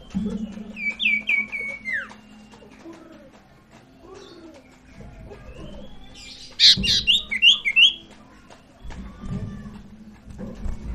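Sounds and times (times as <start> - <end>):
songbird chirping and whistling: 0.0 - 2.7, 5.5 - 8.1.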